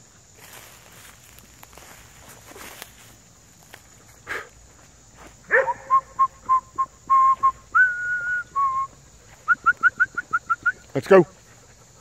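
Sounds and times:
person whistling: 5.6 - 10.9.

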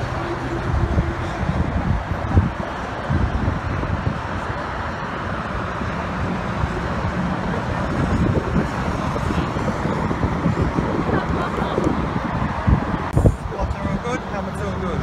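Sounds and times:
city traffic rumble: 0.0 - 15.0
wind buffeting microphone: 0.0 - 15.0.

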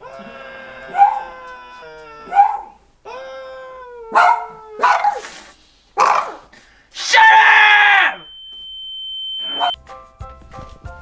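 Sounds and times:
dog howling: 0.0 - 5.2, 9.4 - 9.8.

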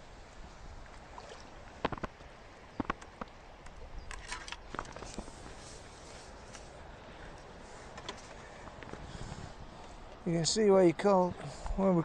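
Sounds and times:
light water splashing: 0.4 - 9.1
fishing pole clicks and knocks: 2.8 - 5.3
wind buffeting microphone: 6.8 - 10.3.

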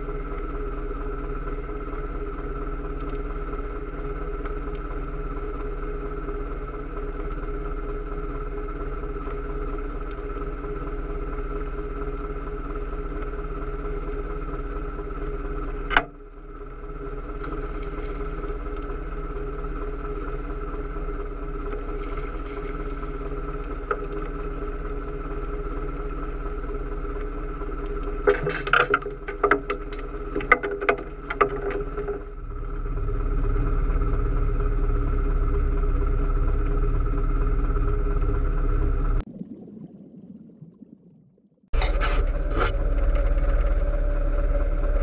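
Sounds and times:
boat engine idling: 0.0 - 39.2, 41.7 - 45.0
sharp clattering knocks: 28.2 - 32.3
loud low rumble: 31.0 - 39.4, 41.8 - 45.0.

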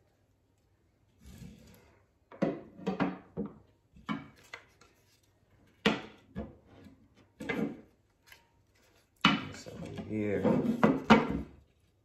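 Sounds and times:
wooden knocks and rubs: 9.2 - 11.8.

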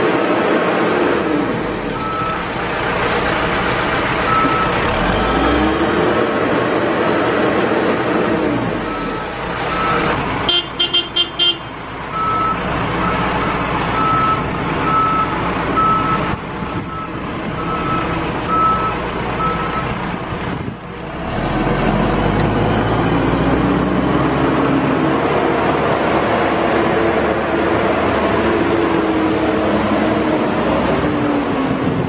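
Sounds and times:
diesel engine running: 0.0 - 32.0
horn toots: 10.4 - 11.7.

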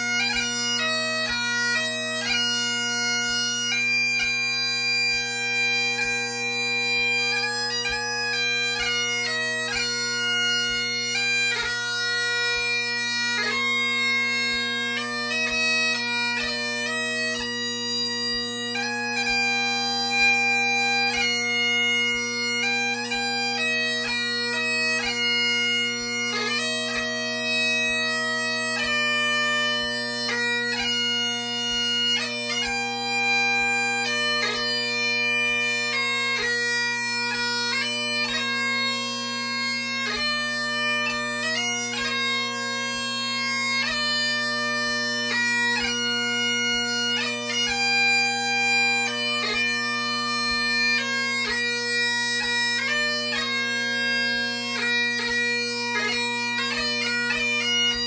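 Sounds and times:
bagpipes playing melody: 0.0 - 58.0.

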